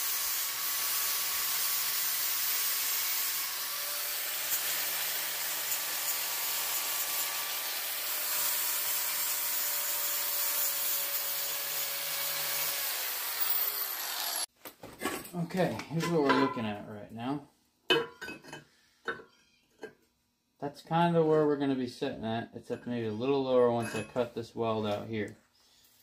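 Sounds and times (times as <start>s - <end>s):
angle grinder grinding steel: 0.0s - 14.5s
grinder motor winding down: 9.6s - 14.5s.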